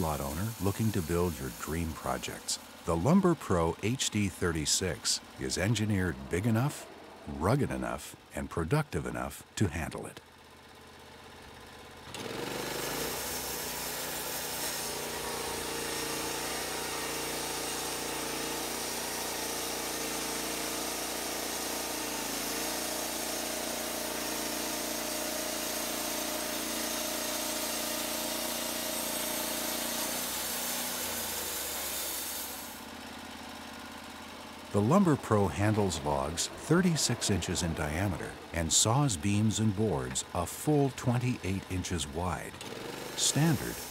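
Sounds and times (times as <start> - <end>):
sawmill engine running: 0.0 - 43.9
band blade hissing through wood: 28.4 - 32.8.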